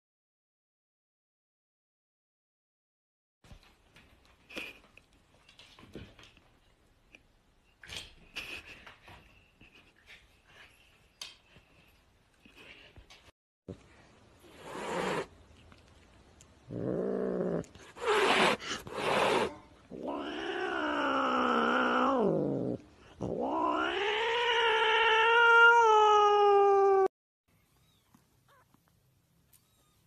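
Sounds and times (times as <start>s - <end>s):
cat hissing: 14.4s - 15.3s, 17.2s - 22.4s, 23.2s - 25.9s
cat yowling: 23.3s - 27.1s.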